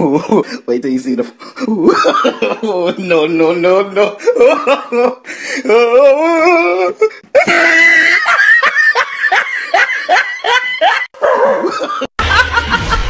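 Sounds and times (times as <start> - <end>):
person laughing hard: 1.6 - 3.1, 4.0 - 13.0.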